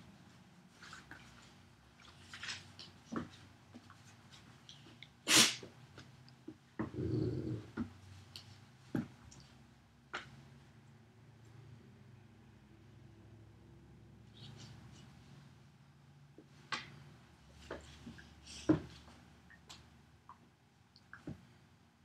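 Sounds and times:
dog growling: 6.8s - 7.8s.

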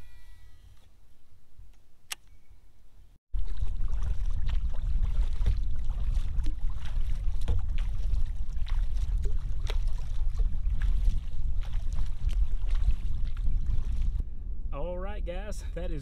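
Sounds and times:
paddle splashing in water: 3.4s - 14.2s
wind rumble on microphone: 3.4s - 16.0s.

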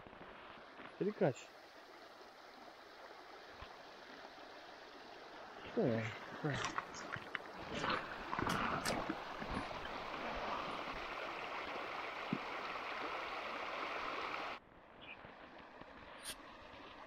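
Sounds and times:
fast river rushing: 5.6s - 14.6s.

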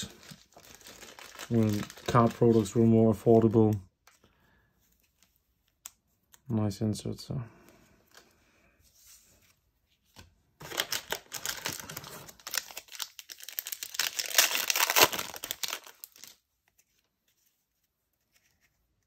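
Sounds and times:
wrapper tearing: 0.0s - 2.5s, 10.6s - 16.4s
plastic wrapper crinkling: 0.0s - 2.8s, 10.6s - 16.4s.

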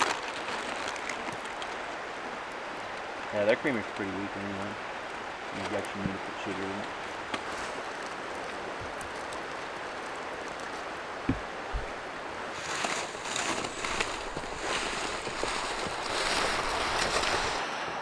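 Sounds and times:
creek rushing: 0.0s - 18.0s
dull thumps: 11.2s - 12.0s
irregular crackling: 12.6s - 17.6s.

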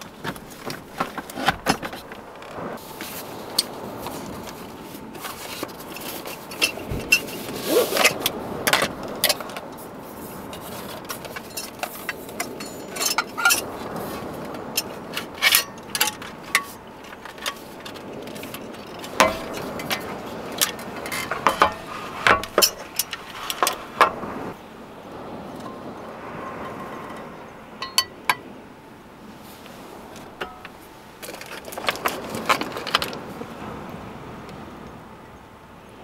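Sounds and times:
metal stove parts clicking and clinking: 5.2s - 9.6s, 10.5s - 24.2s, 30.3s - 33.2s.

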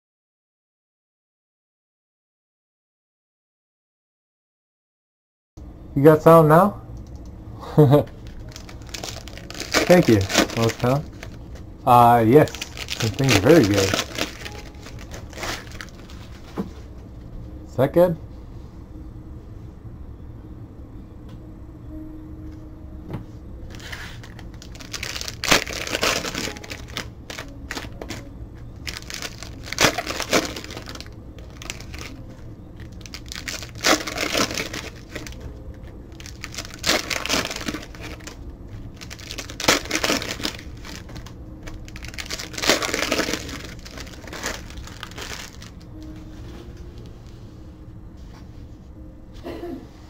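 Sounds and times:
foil wrappers tearing and crinkling: 8.2s - 11.4s, 12.2s - 16.5s, 23.7s - 32.2s, 32.8s - 35.4s, 36.1s - 38.4s, 39.0s - 45.8s
cards being handled: 8.2s - 11.7s, 12.4s - 16.9s.

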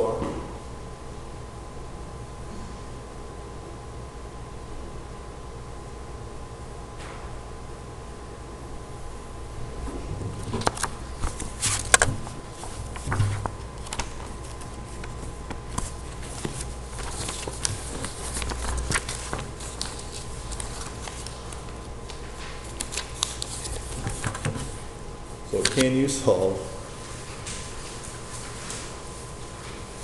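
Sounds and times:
paper sheets rustling: 10.3s - 30.0s.

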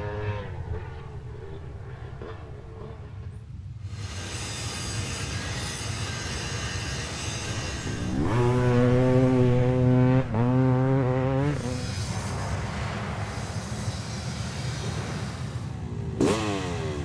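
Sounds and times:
dirt bike engine revving: 0.0s - 3.3s, 7.4s - 12.8s, 16.1s - 17.0s
low rumbling noise: 7.4s - 13.5s.

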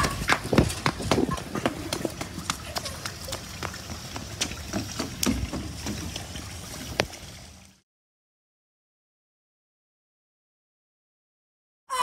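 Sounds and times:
running footsteps on pavement: 0.0s - 6.0s.

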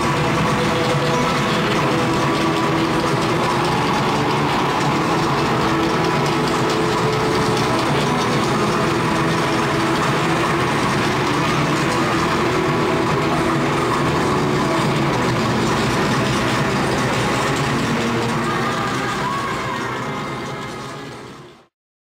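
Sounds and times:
stadium crowd din: 0.0s - 21.7s.

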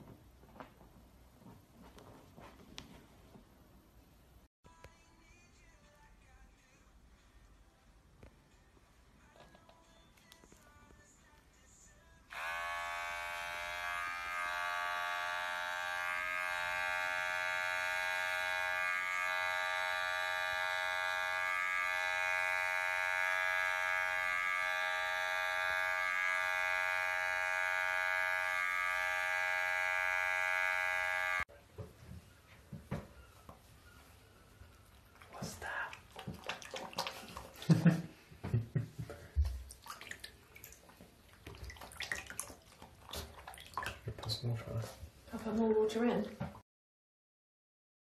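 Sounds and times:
electric hair clipper running: 12.3s - 31.5s.

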